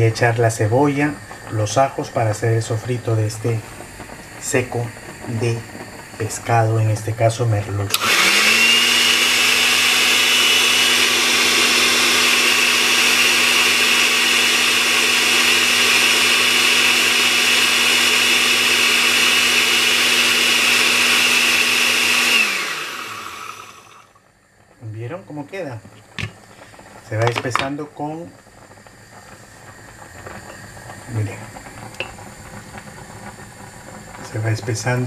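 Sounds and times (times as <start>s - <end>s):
blender motor whining: 7.8s - 24.3s.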